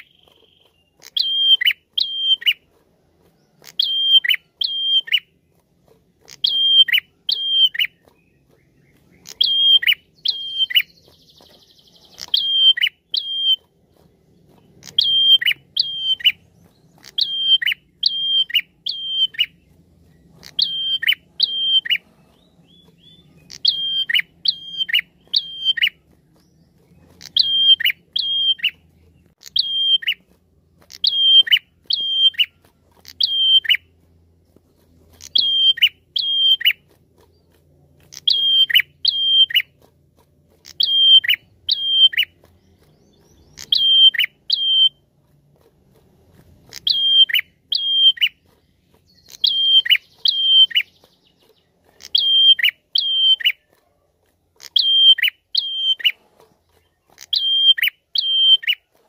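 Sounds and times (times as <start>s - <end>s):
bird calling sharp high notes: 0.0s - 2.6s, 3.6s - 5.3s, 6.3s - 8.0s, 9.2s - 11.1s, 11.8s - 13.7s, 14.8s - 16.4s, 17.0s - 19.6s, 20.4s - 22.0s, 22.7s - 26.0s, 27.2s - 28.8s, 29.4s - 30.3s, 30.9s - 33.9s, 35.2s - 36.9s, 38.1s - 39.8s, 40.6s - 42.4s, 43.4s - 45.0s, 46.7s - 48.4s, 49.1s - 51.1s, 52.0s - 53.6s, 54.6s - 56.2s, 57.2s - 58.9s.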